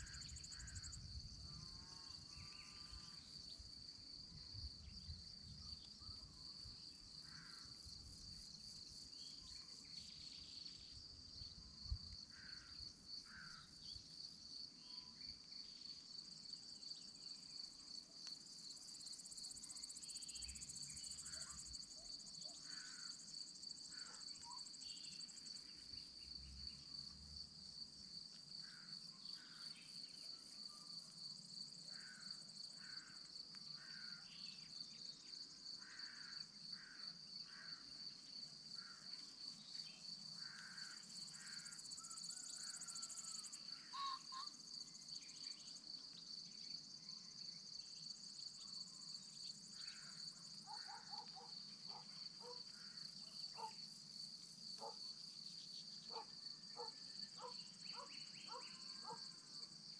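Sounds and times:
crickets trilling: 0:00.0 - 0:03.7, 0:17.2 - 0:59.9.

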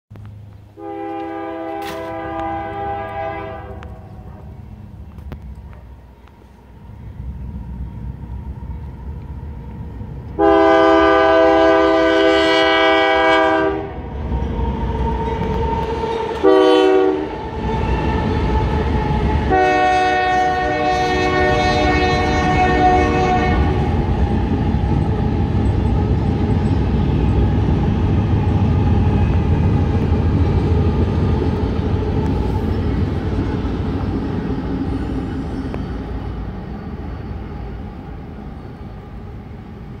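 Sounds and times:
locomotive engines rumbling past: 0:00.1 - 0:40.0
locomotive air horn: 0:00.8 - 0:04.4, 0:10.4 - 0:14.0, 0:15.8 - 0:18.1, 0:19.4 - 0:23.9.

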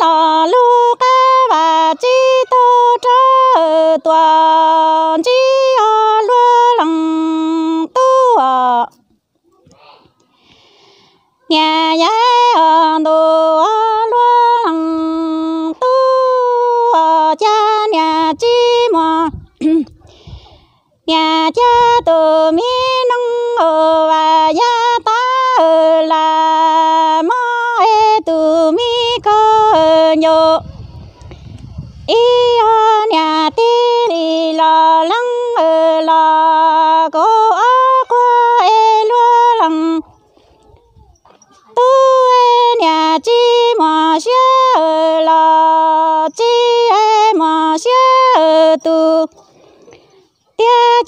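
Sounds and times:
woman singing unaccompanied: 0:00.0 - 0:09.0, 0:11.4 - 0:20.4, 0:21.0 - 0:49.4, 0:50.2 - 0:51.0
singer breaths: 0:09.6 - 0:11.4, 0:20.0 - 0:21.0, 0:30.7 - 0:32.1, 0:49.4 - 0:50.5.

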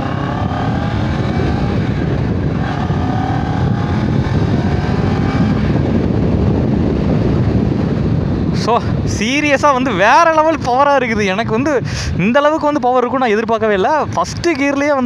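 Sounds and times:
motorcycle engine accelerating: 0:00.0 - 0:09.8.

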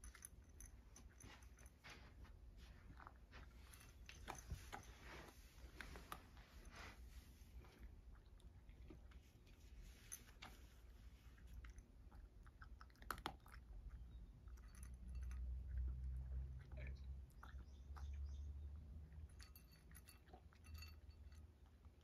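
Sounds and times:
cat crunching kibble: 0:07.5 - 0:18.1.

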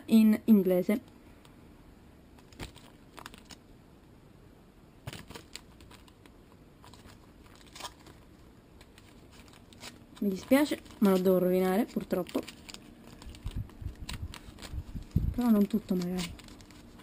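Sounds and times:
paper rustling: 0:02.4 - 0:03.6, 0:05.1 - 0:17.0
packet crinkling: 0:02.4 - 0:03.7, 0:05.1 - 0:17.0.

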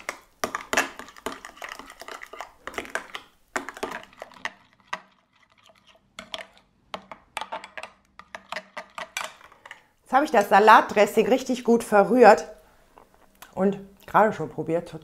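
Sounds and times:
spoon stirring in glass bowl: 0:00.0 - 0:09.9.

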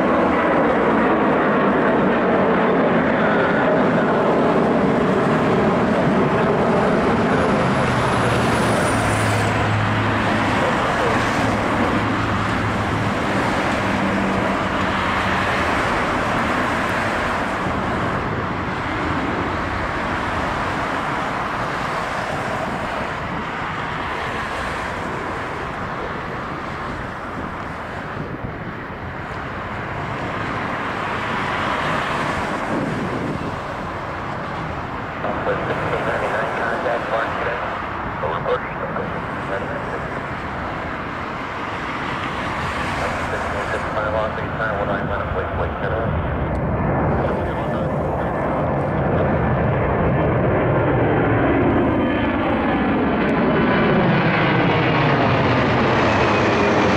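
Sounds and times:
distant jet engines roaring: 0:00.0 - 0:56.9.

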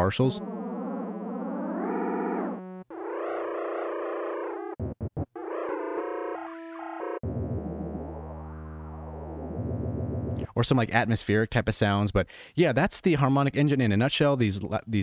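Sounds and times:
sci-fi synth tone: 0:00.0 - 0:10.5.

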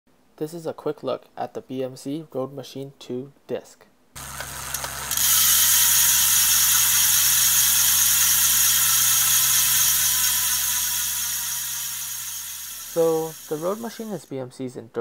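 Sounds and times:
bicycle hub ratchet buzzing: 0:04.2 - 0:14.3.

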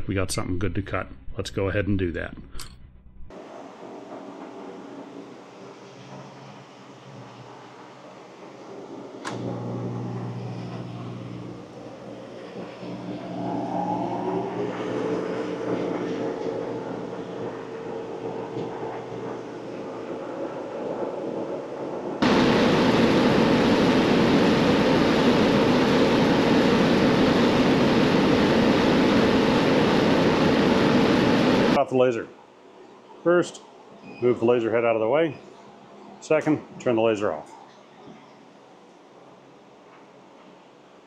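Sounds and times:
loud rush of air: 0:03.3 - 0:31.8
laser cutter machinery humming: 0:03.4 - 0:31.8.

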